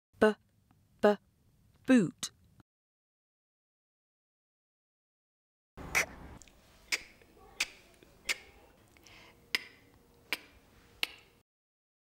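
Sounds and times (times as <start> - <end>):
girl saying phonics sound: 1.0 - 1.2, 1.9 - 2.3.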